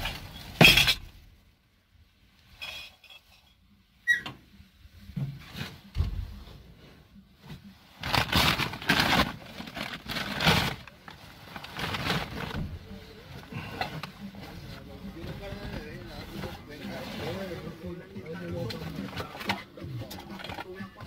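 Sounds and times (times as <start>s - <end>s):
plastic and fabric bags rustling: 0.0s - 0.9s, 5.3s - 20.9s.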